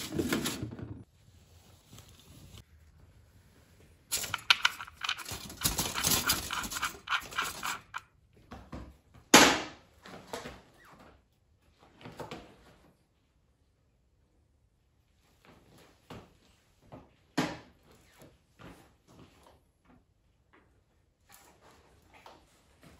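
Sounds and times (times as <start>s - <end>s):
motorcycle scuffs and creaks: 0.0s - 2.6s.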